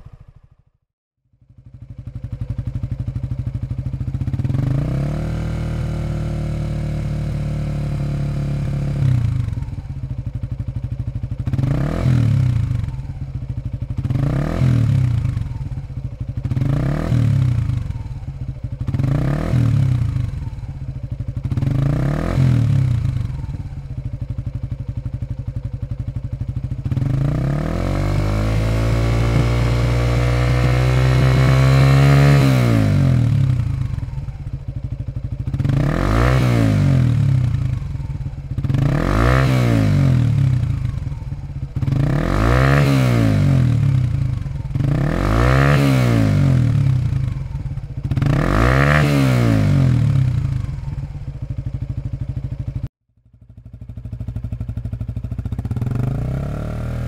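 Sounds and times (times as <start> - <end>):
engine throttle blips: 0.0 - 0.8
motorcycle engine idling and revving: 0.0 - 57.0.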